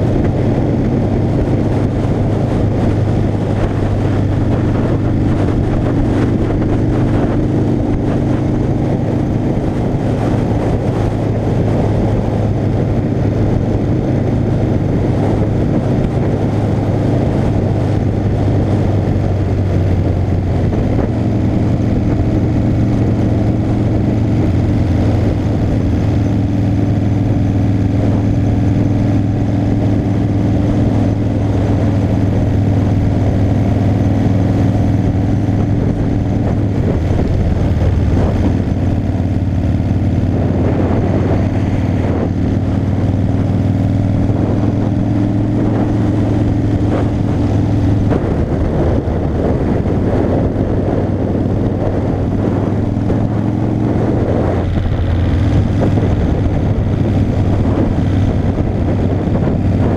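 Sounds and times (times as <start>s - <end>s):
motorcycle engine droning: 0.0s - 59.9s.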